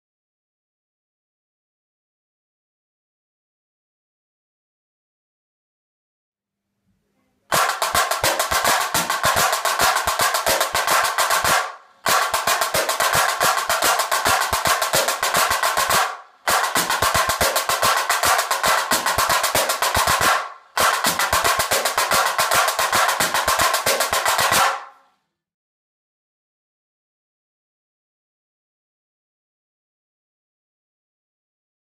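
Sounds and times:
snare drum rolls: 7.5s - 25.0s.

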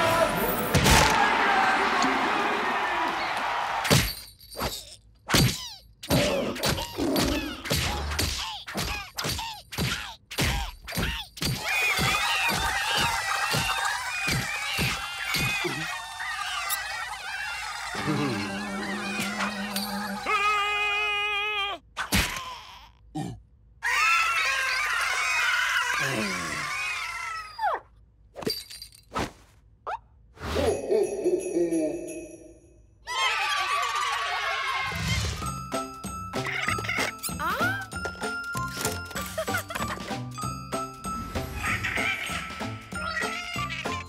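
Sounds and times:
cartoon characters screaming: 11.0s - 22.8s, 23.8s - 27.8s, 33.1s - 35.4s.

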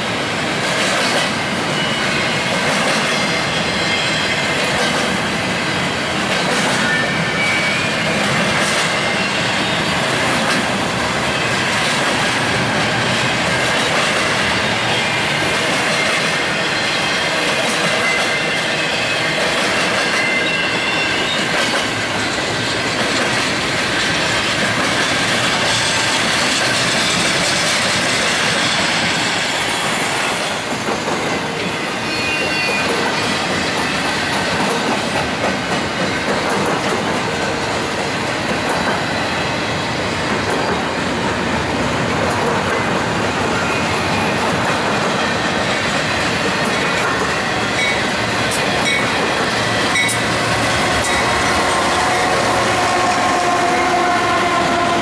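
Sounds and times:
train wheels rumbling on rails: 0.0s - 55.0s
wheel squeals: 31.6s - 34.4s.

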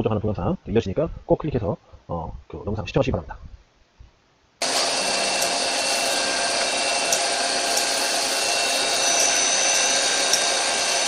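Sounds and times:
lathe hissing machine noise: 4.6s - 11.0s.

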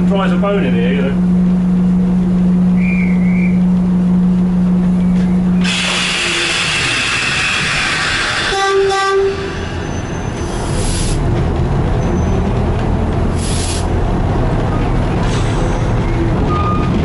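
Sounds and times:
diesel engine rumble: 0.0s - 17.0s
hiss: 5.6s - 8.6s, 10.6s - 11.2s, 13.4s - 13.9s
locomotive horn blast: 5.6s - 10.2s.

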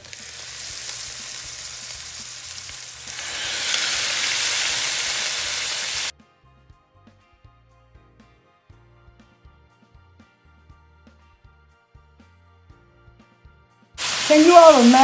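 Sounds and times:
steak sizzling in frying pan: 0.0s - 6.1s, 14.0s - 15.0s.

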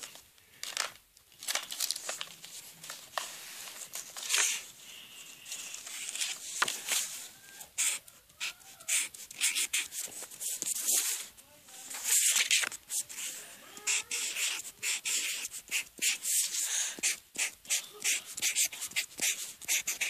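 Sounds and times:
pen scratching on paper: 7.8s - 11.2s, 12.0s - 20.0s.

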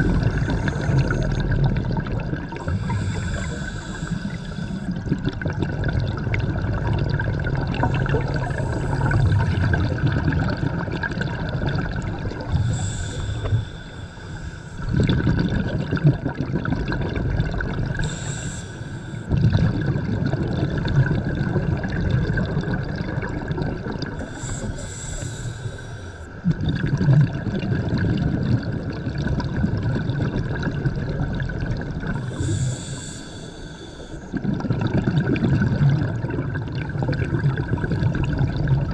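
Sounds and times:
regulator inhale hiss: 0.0s - 1.4s, 2.6s - 5.0s, 7.8s - 9.8s, 12.4s - 14.9s, 18.0s - 19.3s, 24.2s - 26.4s, 32.2s - 34.4s
exhaled bubbles rumbling: 0.0s - 38.9s.

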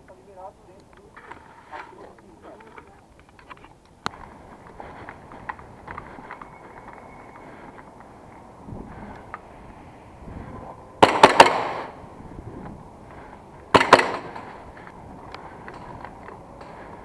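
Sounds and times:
airsoft gun shots echoing: 11.0s - 12.0s, 13.7s - 14.5s.

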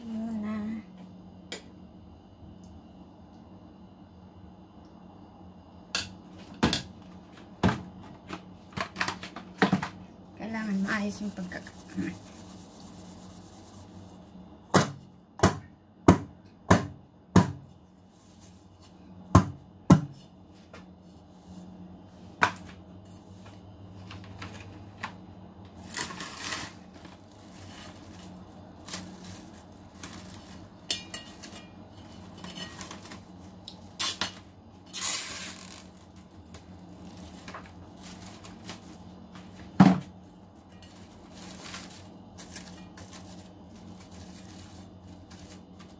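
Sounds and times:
cling film crinkling: 25.8s - 39.6s, 40.2s - 45.9s.

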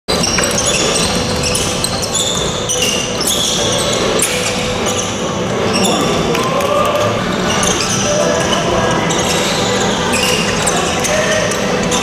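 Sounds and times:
basketball dribbling: 0.1s - 6.5s
sneakers squeaking on hardwood: 0.1s - 12.0s.

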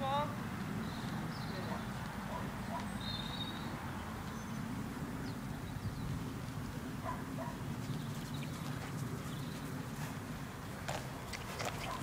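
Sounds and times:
wind rumble on microphone: 3.7s - 12.0s
hoofbeats on sand: 7.8s - 12.0s.

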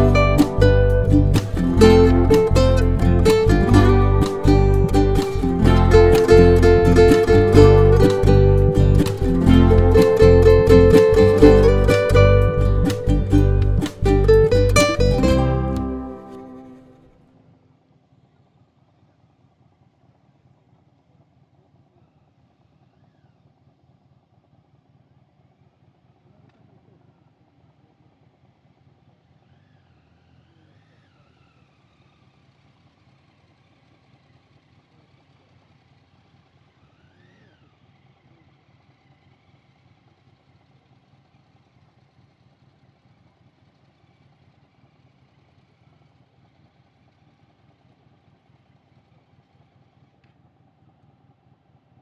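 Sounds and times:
faint low hum: 0.0s - 32.2s
faint rising and falling whistles: 29.4s - 32.6s, 36.7s - 38.0s.

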